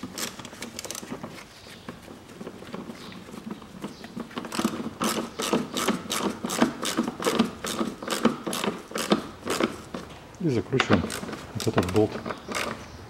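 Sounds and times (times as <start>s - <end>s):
hand ratchet clicking: 4.5s - 10.0s, 10.8s - 12.8s.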